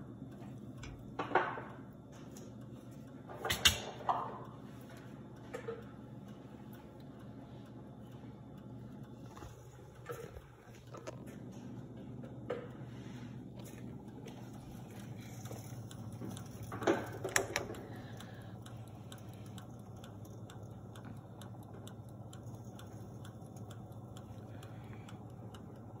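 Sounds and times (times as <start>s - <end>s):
kitchen appliance humming: 0.0s - 26.0s
faint ticking: 4.4s - 26.0s.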